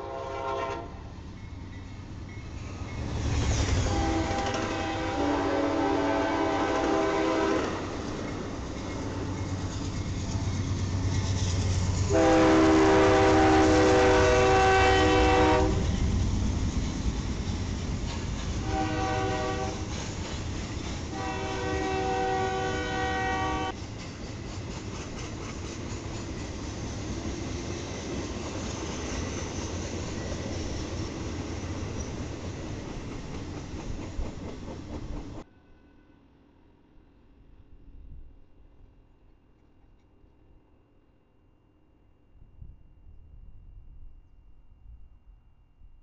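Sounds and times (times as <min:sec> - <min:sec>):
locomotive horn blasts: 0:00.0 - 0:01.0, 0:03.8 - 0:07.8, 0:12.1 - 0:15.9, 0:18.6 - 0:19.9, 0:21.1 - 0:23.8
rail cars rolling: 0:00.0 - 0:35.5.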